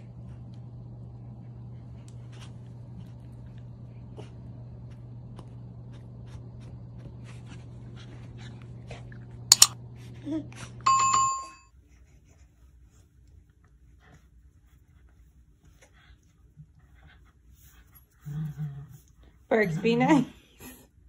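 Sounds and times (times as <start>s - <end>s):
low hum with faint ticks: 0.0s - 21.0s
bright bell ding: 9.5s - 9.7s, 10.9s - 11.6s.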